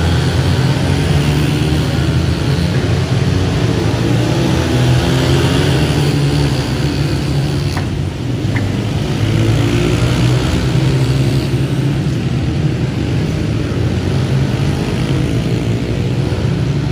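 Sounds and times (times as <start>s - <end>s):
dirt bike engines revving: 0.0s - 16.9s.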